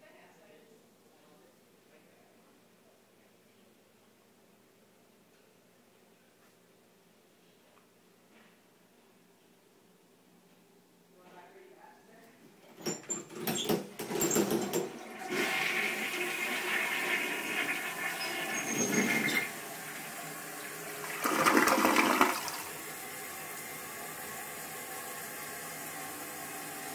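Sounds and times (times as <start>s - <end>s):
toilet flushing: 13.2s - 26.9s
running water hiss: 15.3s - 26.9s.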